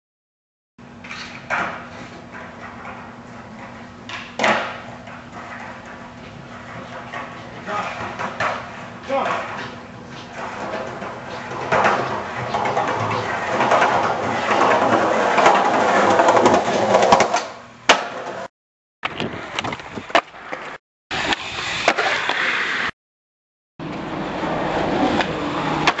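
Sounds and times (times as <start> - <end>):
skateboard rolling on concrete: 0.8 - 22.9, 23.8 - 26.0
skateboard grinding scrape: 1.0 - 18.5, 19.1 - 22.9, 23.8 - 26.0
skateboard clacks: 1.0 - 22.5, 25.0 - 26.0.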